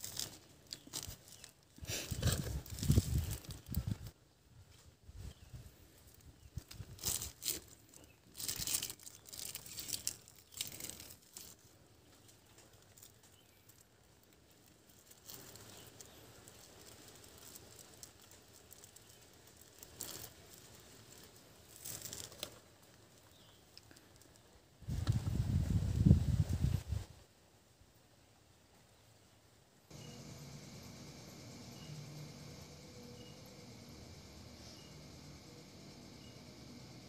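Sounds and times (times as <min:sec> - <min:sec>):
plastic wrap crinkling and tearing: 0:00.0 - 0:04.1, 0:06.1 - 0:24.4.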